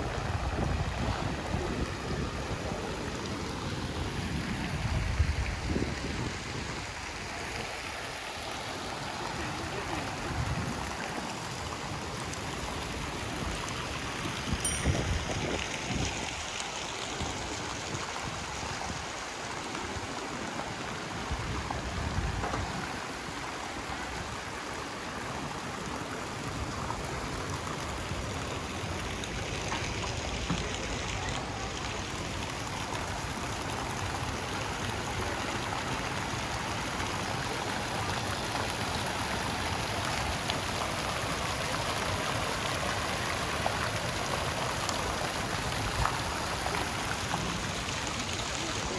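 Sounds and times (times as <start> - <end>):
continuous rushing hiss: 0.0 - 48.9.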